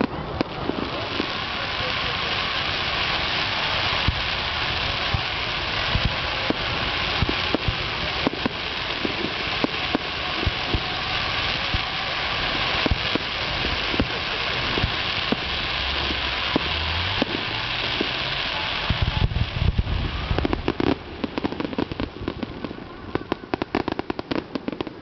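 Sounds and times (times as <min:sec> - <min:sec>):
firework shells bursting: 0:00.0 - 0:19.2, 0:20.3 - 0:25.0
fireworks crackling hiss: 0:00.0 - 0:25.0.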